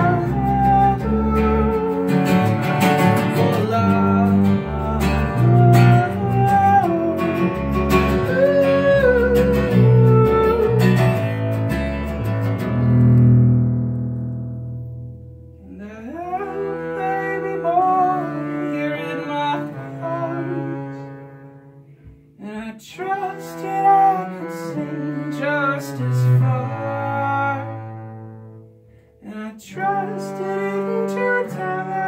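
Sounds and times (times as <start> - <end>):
man singing: 0.0 - 11.4, 15.6 - 21.1, 22.4 - 28.0, 29.2 - 32.0
bowed upright bass: 0.0 - 29.2
acoustic guitar: 0.0 - 32.0.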